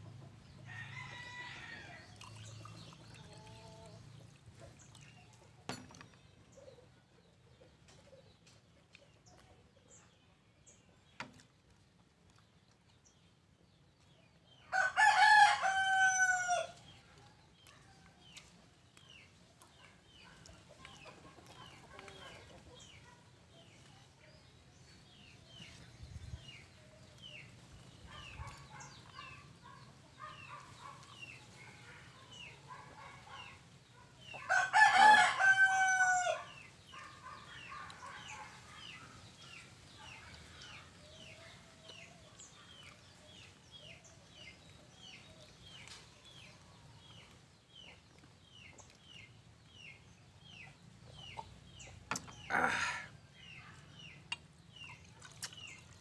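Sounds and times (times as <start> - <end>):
rooster crowing: 14.7 - 16.8, 34.5 - 36.5.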